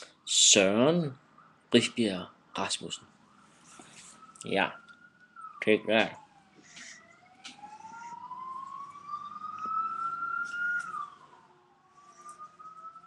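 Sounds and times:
emergency vehicle siren wailing: 0:00.0 - 0:13.0.

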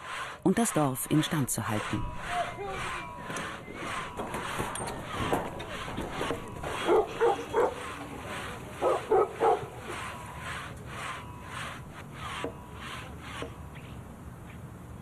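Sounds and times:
dog barking: 0:06.8 - 0:07.8, 0:08.8 - 0:09.7.

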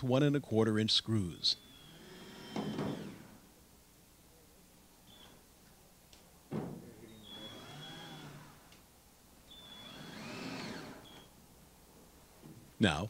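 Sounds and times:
cordless drill driving screws: 0:01.6 - 0:03.4, 0:07.2 - 0:08.8, 0:09.5 - 0:11.3.

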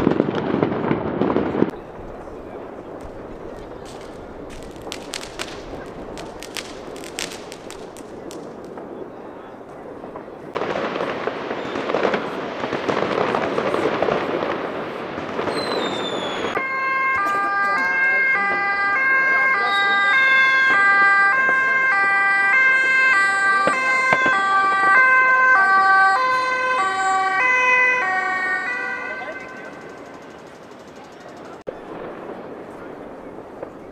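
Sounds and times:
fountain firework rushing hiss: 0:02.7 - 0:08.7
two-tone ambulance sirens: 0:03.8 - 0:08.6, 0:15.8 - 0:31.1.

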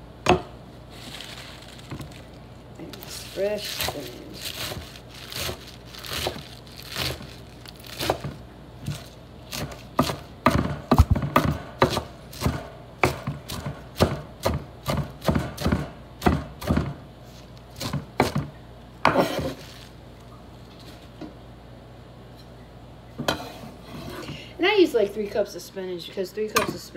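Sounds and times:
knife chopping on wooden board: 0:03.6 - 0:07.3, 0:07.9 - 0:17.0, 0:17.8 - 0:19.6.

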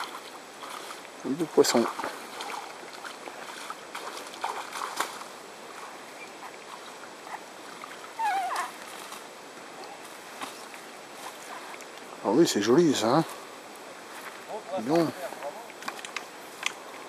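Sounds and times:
faint steady hiss: 0:00.0 - 0:17.0
light clicks: 0:15.7 - 0:16.8.

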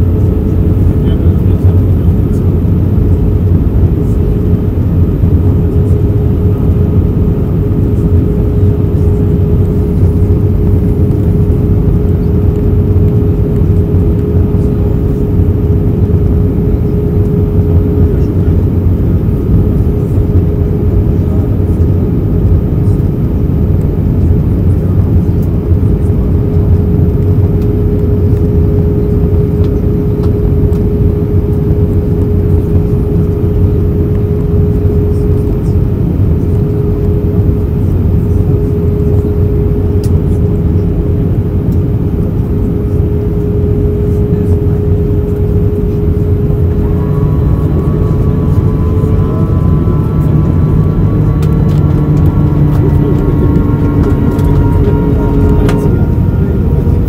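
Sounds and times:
cabin airflow rush: 0:00.0 - 0:57.0
jet engines droning: 0:00.0 - 0:57.0
steady humming tone: 0:00.0 - 0:57.0
faint higher tones: 0:43.3 - 0:57.0.

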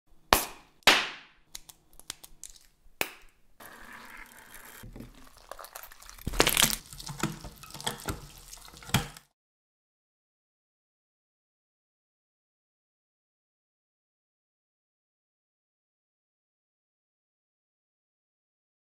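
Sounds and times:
sharp crackling snaps: 0:01.5 - 0:03.4
wet crackling slime crunching: 0:05.2 - 0:09.2.

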